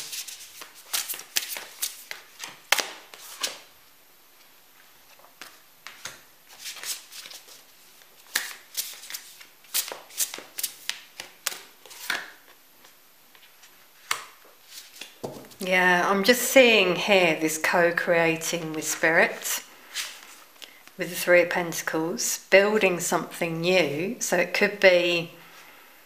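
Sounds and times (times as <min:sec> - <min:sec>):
cards shuffling: 0:00.0 - 0:03.7, 0:04.8 - 0:15.6, 0:19.9 - 0:20.9
cards laid down: 0:13.4 - 0:15.6.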